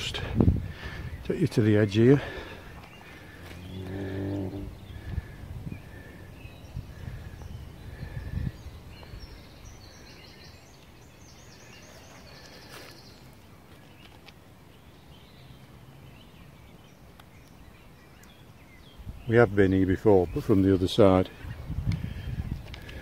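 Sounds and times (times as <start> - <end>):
birds chirping and trilling: 0.0 - 23.0
outdoor hush: 0.0 - 23.0
low thumps and rumble: 3.3 - 5.8.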